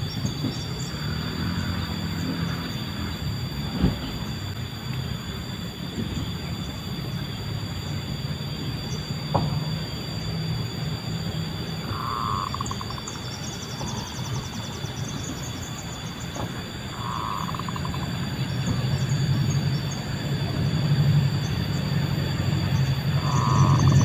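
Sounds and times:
steady low drone: 0:00.0 - 0:24.0
faint high chirps: 0:21.4 - 0:24.0
dove cooing with rattle: 0:23.2 - 0:24.0.

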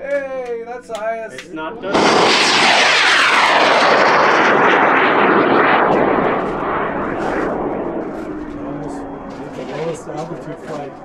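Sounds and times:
rocket motor roaring: 0:01.9 - 0:08.6.

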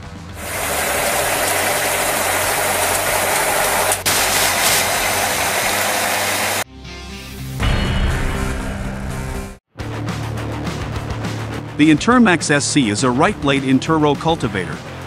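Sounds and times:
harvester machine hissing: 0:00.4 - 0:06.6.

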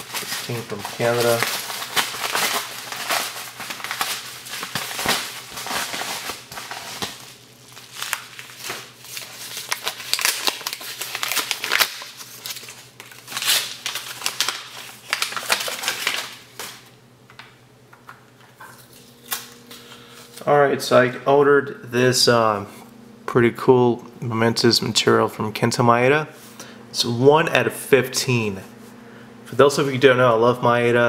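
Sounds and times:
packaging crinkling and tearing: 0:00.0 - 0:16.9.

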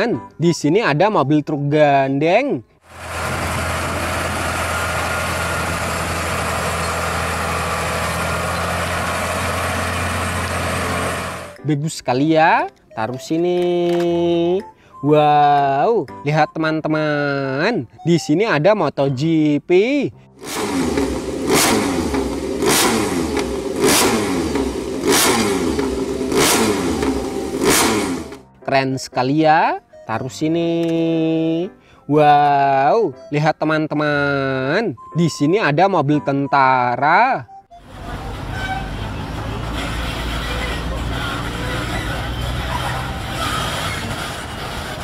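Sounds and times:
diesel truck engine droning: 0:02.9 - 0:11.6, 0:20.4 - 0:28.5, 0:37.7 - 0:45.0.

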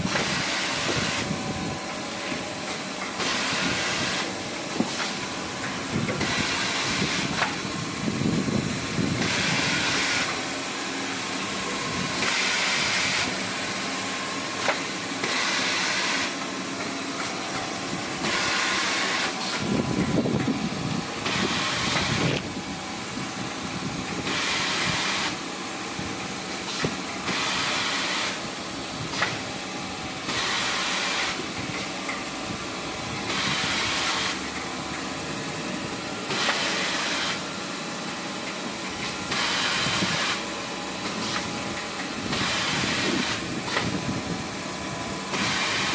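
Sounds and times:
machine hiss: 0:00.0 - 0:01.4, 0:02.2 - 0:20.4, 0:21.1 - 0:22.4, 0:24.2 - 0:25.5, 0:26.6 - 0:29.5, 0:30.1 - 0:32.0, 0:32.6 - 0:34.6, 0:36.2 - 0:37.7, 0:38.8 - 0:44.3, 0:45.2 - 0:45.9.

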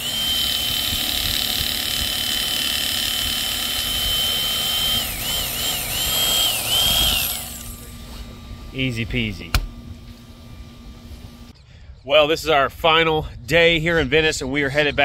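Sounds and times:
electric fillet knife whining: 0:00.0 - 0:08.1.

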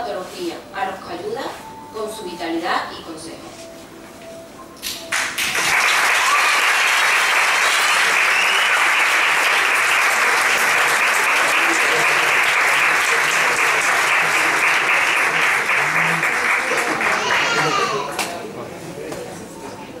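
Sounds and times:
audience applauding: 0:05.1 - 0:18.1.

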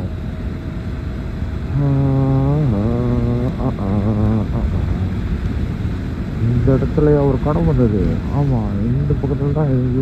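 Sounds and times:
long humming tone: 0:00.0 - 0:10.0
motorcycle engine and wind rumble: 0:00.0 - 0:10.0.

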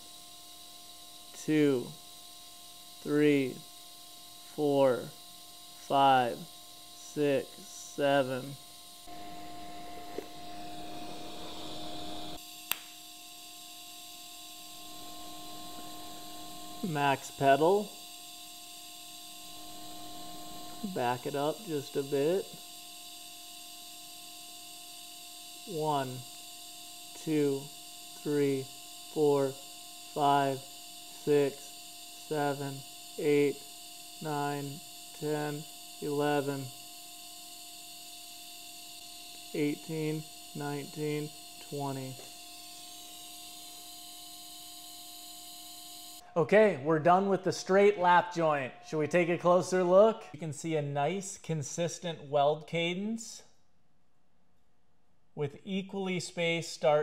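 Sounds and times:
welder arc humming and hissing: 0:00.0 - 0:52.4
man counting aloud: 0:01.4 - 0:02.0, 0:03.0 - 0:03.6, 0:05.8 - 0:08.6, 0:16.8 - 0:17.9, 0:20.8 - 0:22.6, 0:25.7 - 0:26.2, 0:27.2 - 0:29.6, 0:30.2 - 0:30.6, 0:31.2 - 0:31.6, 0:32.3 - 0:33.6, 0:34.2 - 0:36.7, 0:39.6 - 0:42.2, 0:46.4 - 0:53.4
sharp click: 0:12.7 - 0:12.9.

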